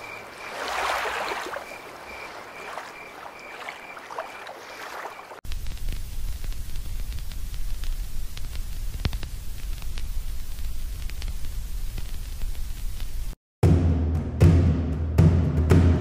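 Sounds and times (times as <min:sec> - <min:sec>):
faint crackles: 0:00.0 - 0:13.4
television static hiss: 0:05.5 - 0:13.3.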